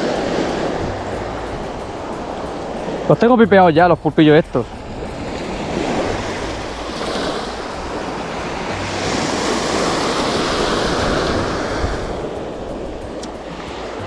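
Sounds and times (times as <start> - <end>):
sea waves washing ashore: 0.0 - 14.0
wind rumbling on microphone: 0.0 - 14.0.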